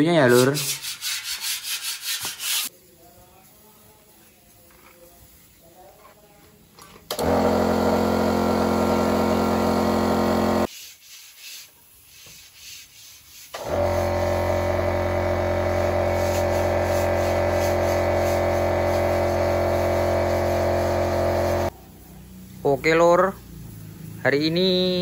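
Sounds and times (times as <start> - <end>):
air compressor running: 7.1 - 10.7, 13.6 - 21.7.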